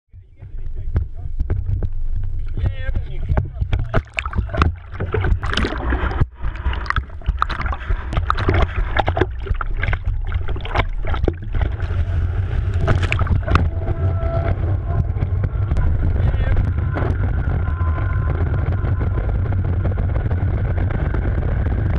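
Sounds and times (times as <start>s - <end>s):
wind: 0.1s - 21.9s
water sloshing and splashing: 3.2s - 18.2s
rushing water: 3.6s - 18.2s.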